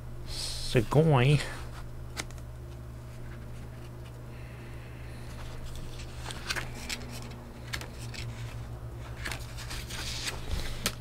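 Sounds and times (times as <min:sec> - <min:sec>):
steady low hum: 0:00.0 - 0:11.0
paper booklet rustling and tapping: 0:05.7 - 0:11.0.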